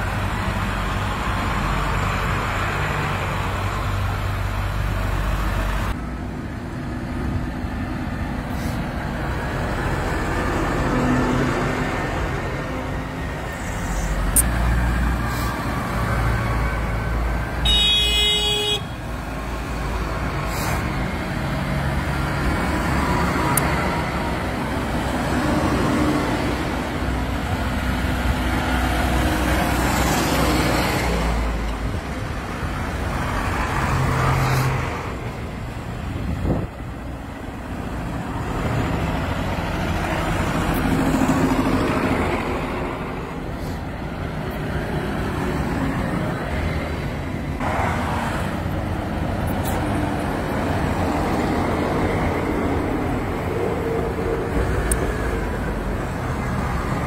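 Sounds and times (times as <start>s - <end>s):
tractor diesel engines passing: 0.0s - 57.0s
tyres hissing on wet road: 8.4s - 10.9s, 13.3s - 17.3s, 19.1s - 27.2s, 43.3s - 46.9s
horn toot: 17.6s - 19.0s.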